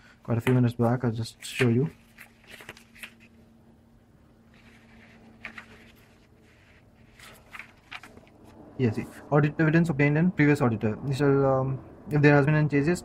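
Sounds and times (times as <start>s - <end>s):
faint steady hum: 0.0s - 13.0s
paper rustling: 0.4s - 3.4s, 4.5s - 8.5s.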